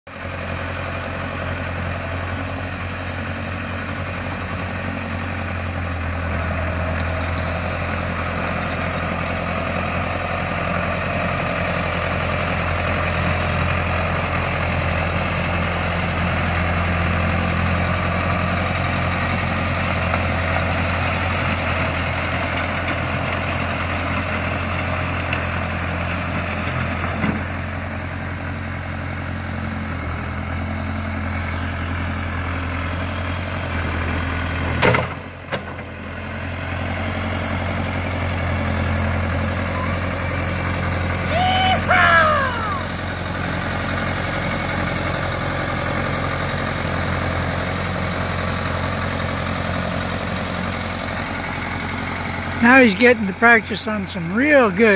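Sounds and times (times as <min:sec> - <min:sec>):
tractor engine running: 0:00.2 - 0:41.9, 0:42.8 - 0:54.9.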